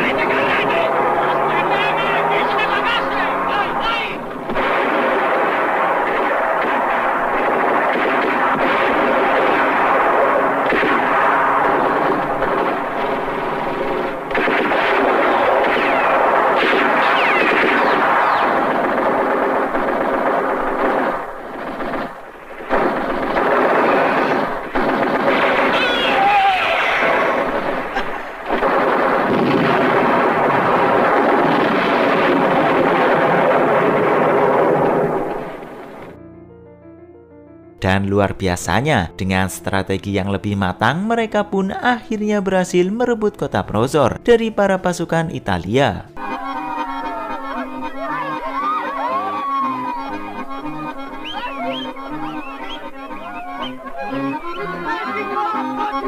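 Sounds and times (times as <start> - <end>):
explosions: 0.0 - 36.2, 46.3 - 56.0
gunfire: 0.0 - 36.2, 46.2 - 56.0
machine-gun and rifle fire: 0.0 - 36.2.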